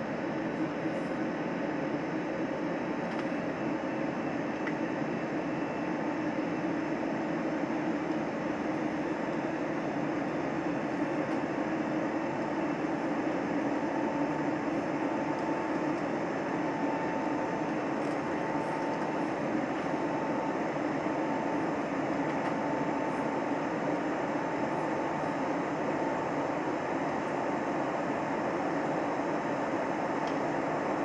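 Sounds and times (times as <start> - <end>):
airplane cabin engine drone: 0.0 - 31.0.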